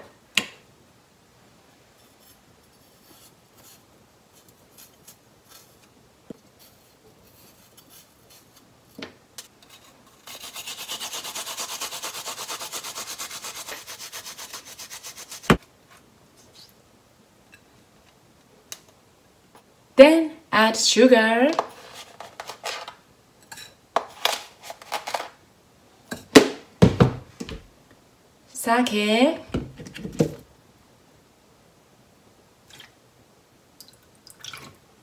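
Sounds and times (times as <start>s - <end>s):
knife scraping ginger: 2.0s - 5.9s, 6.5s - 15.6s
ginger grating on grater: 9.7s - 15.5s.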